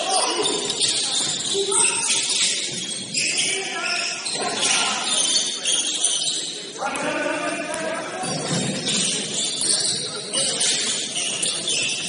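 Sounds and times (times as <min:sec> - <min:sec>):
sneakers squeaking on court: 0:00.0 - 0:06.8, 0:08.2 - 0:12.0.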